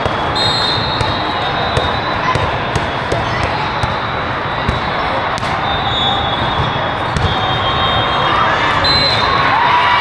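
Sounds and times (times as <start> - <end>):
volleyballs being hit and bouncing: 0.0 - 7.7
many voices talking: 0.8 - 10.0.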